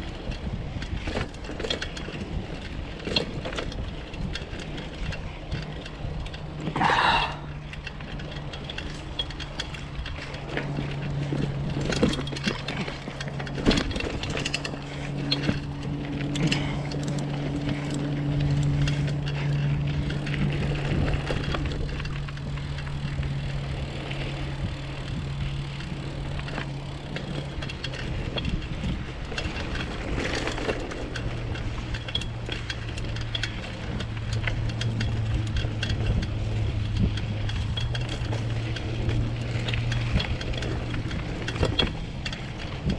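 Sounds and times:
bicycle riding hum: 0:00.0 - 0:42.9
bike rattling and clicking: 0:00.0 - 0:42.9.

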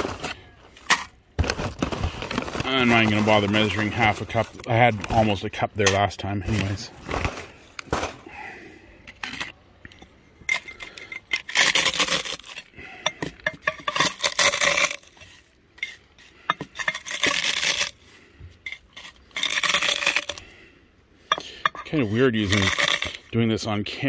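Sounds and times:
chips crunching: 0:10.6 - 0:12.7, 0:13.8 - 0:15.5, 0:16.7 - 0:18.0, 0:18.8 - 0:20.5, 0:22.0 - 0:23.3.

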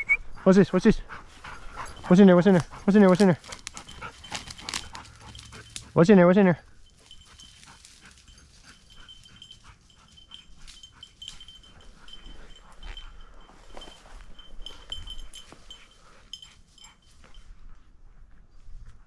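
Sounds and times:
dog collar bell jingling: 0:00.0 - 0:17.9
rustling and twigs snapping in brush: 0:02.6 - 0:06.0.

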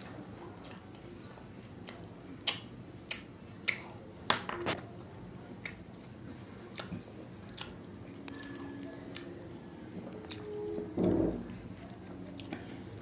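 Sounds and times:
close chewing mouth clicks: 0:05.6 - 0:09.3.

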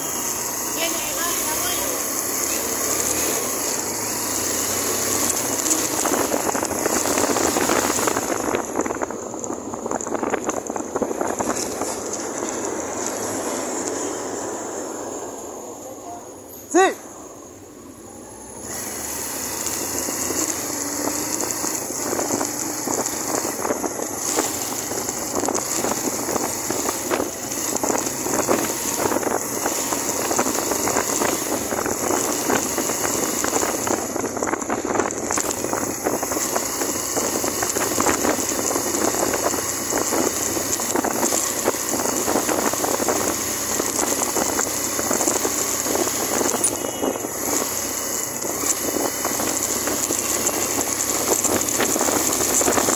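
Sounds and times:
motorcycle engine running: 0:00.0 - 0:16.4, 0:17.4 - 0:52.9
wind buffeting microphone: 0:20.2 - 0:52.9.

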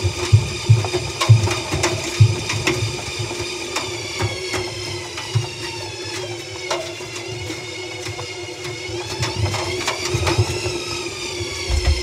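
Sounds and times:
steady whining tone: 0:11.2 - 0:12.0
dull knocks in washing drum: 0:11.6 - 0:12.0.

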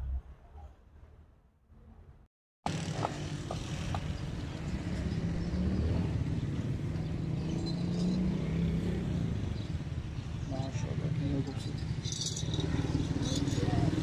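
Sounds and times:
outdoor background noise: 0:00.0 - 0:14.0
engine hum and rumble: 0:02.0 - 0:14.0.

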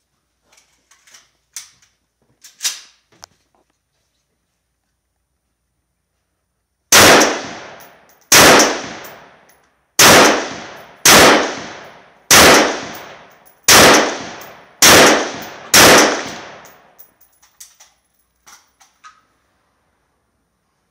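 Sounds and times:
rifle shots echoing: 0:06.9 - 0:09.4, 0:10.0 - 0:17.0.

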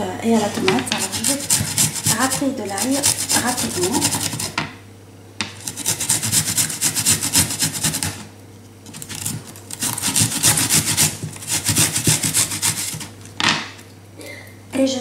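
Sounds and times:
garlic grated on metal grater: 0:00.8 - 0:04.6, 0:05.6 - 0:08.2, 0:09.0 - 0:13.2.

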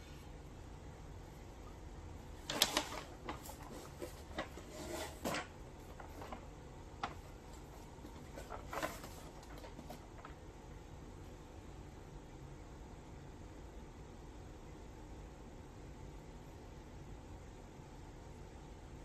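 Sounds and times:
paper bag rustling and crinkling: 0:02.3 - 0:10.4.

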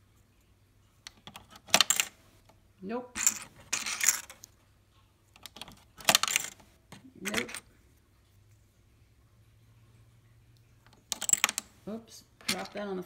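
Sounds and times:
coins clinking into toy cash register: 0:01.2 - 0:02.2, 0:03.2 - 0:04.4, 0:05.4 - 0:07.7, 0:11.1 - 0:11.7.

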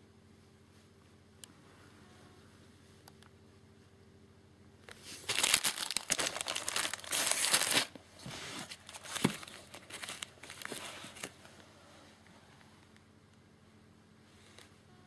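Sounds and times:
plastic wrapping crinkling: 0:04.9 - 0:11.4.

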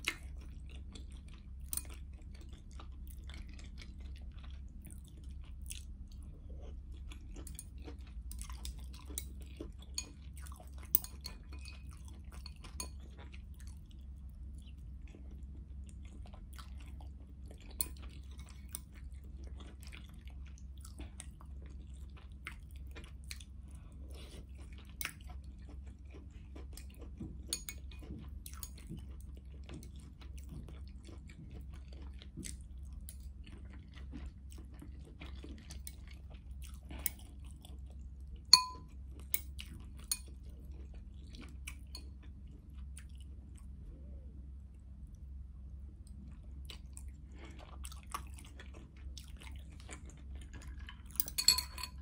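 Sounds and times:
chewing noodles: 0:00.0 - 0:52.0
chopsticks clicking on glass bowl: 0:38.6 - 0:38.8, 0:51.2 - 0:52.0.

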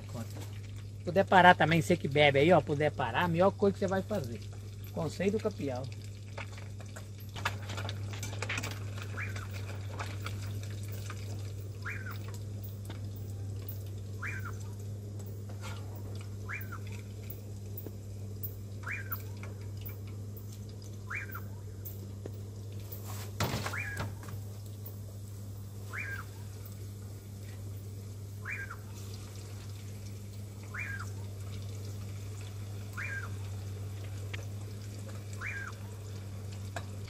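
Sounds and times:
fish sizzling in hot fat: 0:02.9 - 0:18.8, 0:24.4 - 0:37.0
animal short call: 0:14.2 - 0:14.8, 0:23.6 - 0:24.2, 0:25.9 - 0:26.5, 0:33.0 - 0:33.4, 0:35.4 - 0:36.0.

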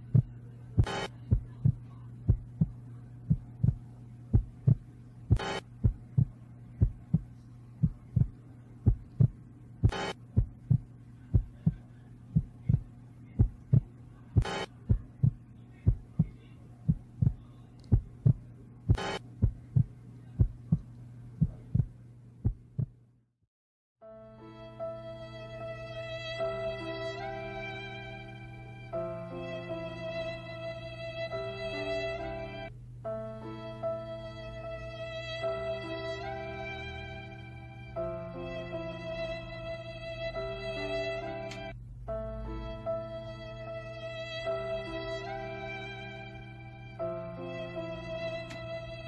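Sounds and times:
soft heartbeat-like thump: 0:00.0 - 0:23.0
steady low hum: 0:00.0 - 0:23.2, 0:24.2 - 0:49.0.

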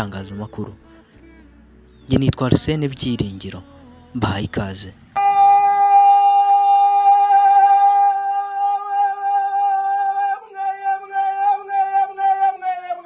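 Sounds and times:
long held musical note: 0:05.2 - 0:07.6.

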